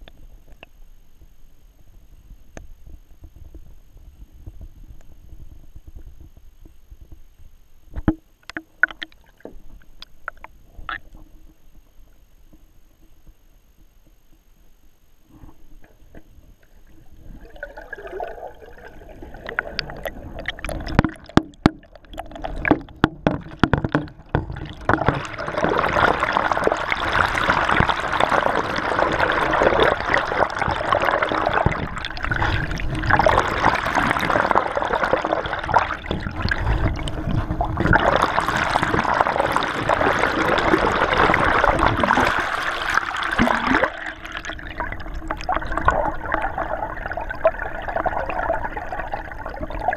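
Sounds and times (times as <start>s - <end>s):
water rushing underwater: 16.7s - 49.9s.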